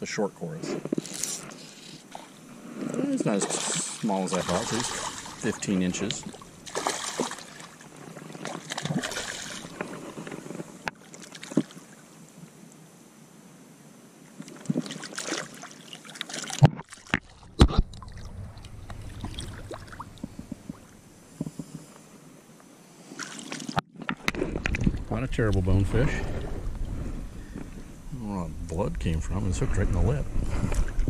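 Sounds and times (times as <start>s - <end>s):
shallow water splashing: 1.1s - 12.0s, 14.4s - 21.4s, 23.1s - 28.1s.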